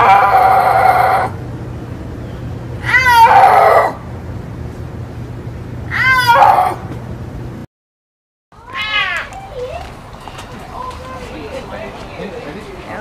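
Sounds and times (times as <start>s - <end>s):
snow leopard cries: 0.0s - 1.4s, 2.8s - 4.0s, 5.9s - 6.8s
wild cat call: 0.0s - 1.4s, 2.8s - 4.0s, 5.9s - 6.8s
low steady hum: 0.0s - 7.7s.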